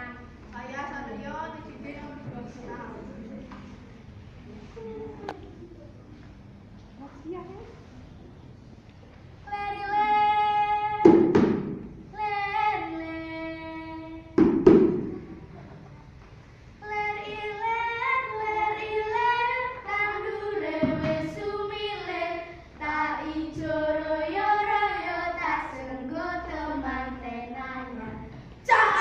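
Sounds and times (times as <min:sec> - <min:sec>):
sharp loud knocks: 0:11.0 - 0:12.0, 0:14.4 - 0:15.4
children singing in unison: 0:16.8 - 0:29.0.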